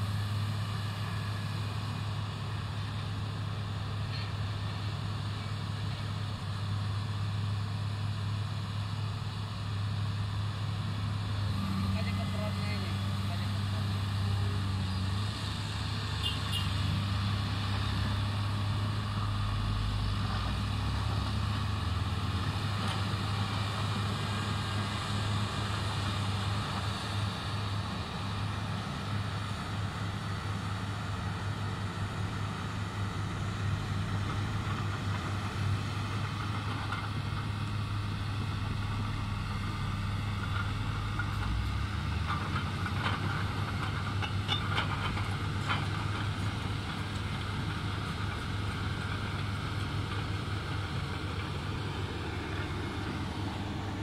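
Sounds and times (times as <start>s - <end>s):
excavator diesel engine running: 0.0s - 54.0s
light metal clanks: 42.3s - 46.3s.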